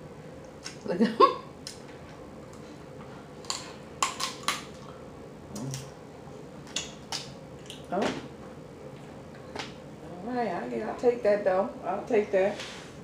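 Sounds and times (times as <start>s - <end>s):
crab shell cracking: 3.4s - 4.9s.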